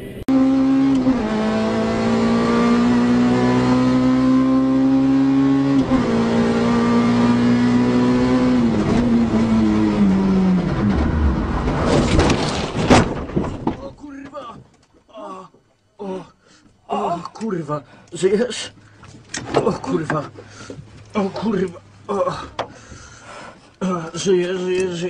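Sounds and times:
rally car engine revving: 0:00.3 - 0:12.7.

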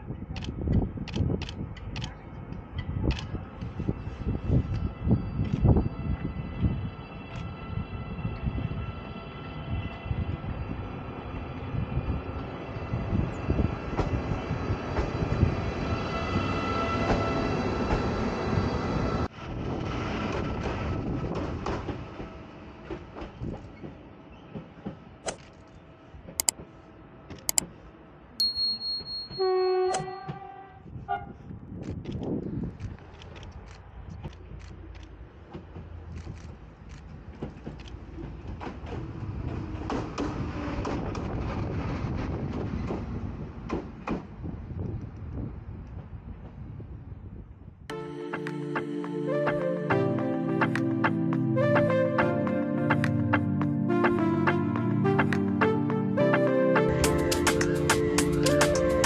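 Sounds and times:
train wheels rumbling on track: 0:00.3 - 0:27.8, 0:30.2 - 0:47.5
electric locomotive approaching: 0:01.6 - 0:27.2, 0:37.1 - 0:46.8, 0:47.9 - 0:59.0
sharp clicks from rails: 0:42.5 - 0:44.4, 0:57.0 - 0:59.0.

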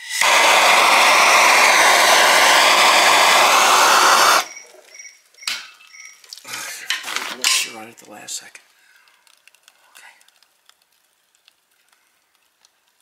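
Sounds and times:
torch flame hissing: 0:00.0 - 0:04.8.

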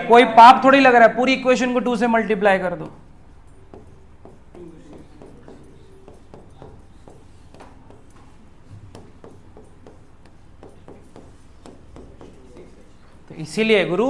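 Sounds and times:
writing taps and scratches on board: 0:02.8 - 0:13.4.

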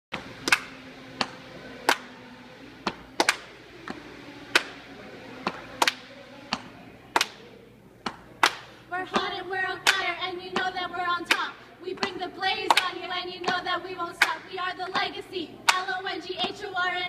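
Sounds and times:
faint low hum: 0:00.1 - 0:17.0
hand claps: 0:00.4 - 0:02.1, 0:02.9 - 0:03.5, 0:05.8 - 0:07.4, 0:08.1 - 0:08.7, 0:11.3 - 0:12.9.

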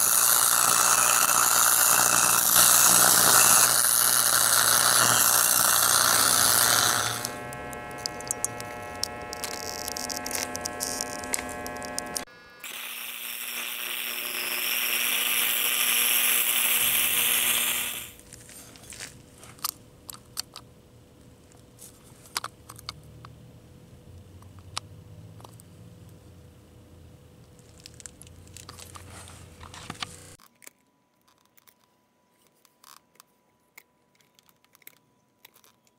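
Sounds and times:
welding arc hissing and crackling: 0:00.0 - 0:18.2
welder hum: 0:00.0 - 0:18.9, 0:28.5 - 0:30.4
small ticks: 0:07.2 - 0:12.2.

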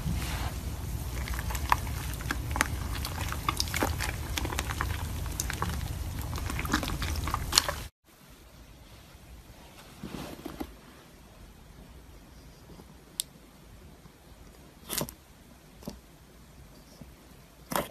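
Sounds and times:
hands squishing sticky slime: 0:00.2 - 0:07.9.

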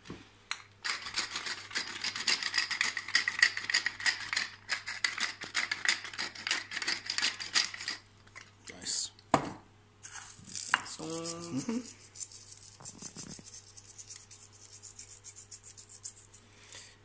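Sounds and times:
pepper mill grinding: 0:00.8 - 0:08.0, 0:10.1 - 0:16.4
person humming: 0:11.0 - 0:12.0.

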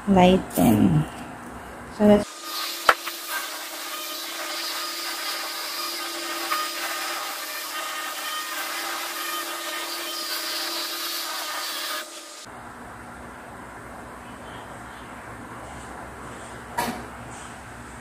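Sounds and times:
laminator motor whirring: 0:02.2 - 0:12.5.

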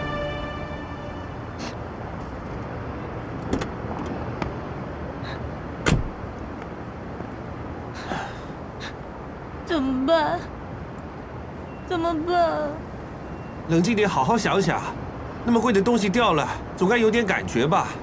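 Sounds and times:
background music: 0:00.0 - 0:01.8
car door clicks: 0:05.8 - 0:06.2
car door shutting: 0:05.8 - 0:06.2.

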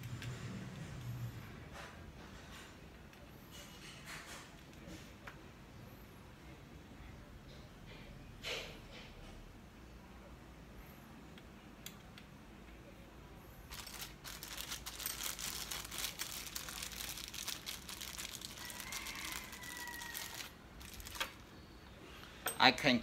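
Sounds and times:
plastic bag crinkling: 0:13.7 - 0:21.5.

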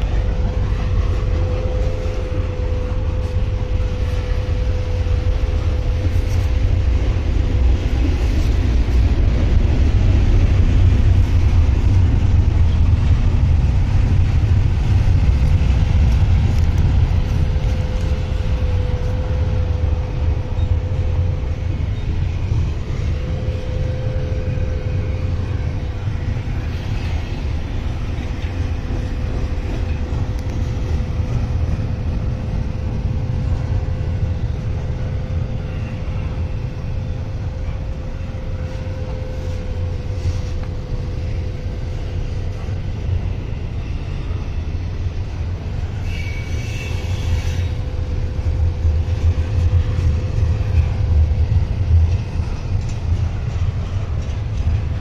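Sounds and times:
steady hum: 0:00.0 - 0:46.0
freight train rumble: 0:00.0 - 0:55.0
high squeal: 0:46.0 - 0:48.0.

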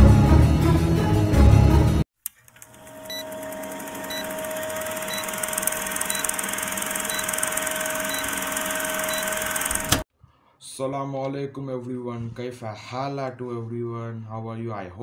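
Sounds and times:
film projector whirring rattle: 0:02.3 - 0:10.0
short high beeps: 0:06.1 - 0:06.4, 0:07.1 - 0:07.4, 0:08.0 - 0:09.5.

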